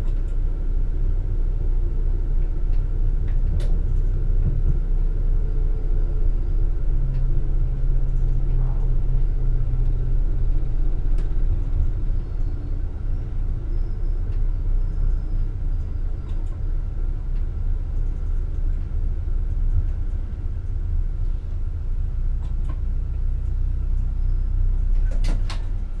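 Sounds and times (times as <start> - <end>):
train rumble from driver's cab: 0.0 - 26.0.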